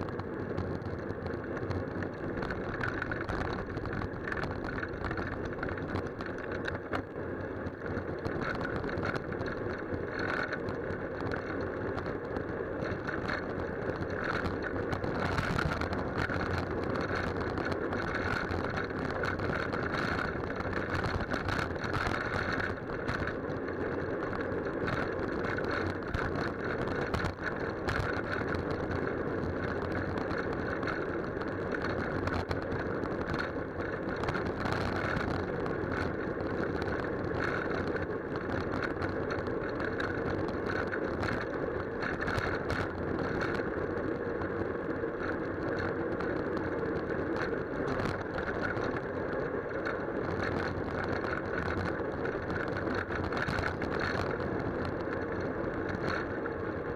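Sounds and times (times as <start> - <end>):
wind and road rumble: 0.0 - 56.9
bicycle knocks and rattles: 7.8 - 23.6.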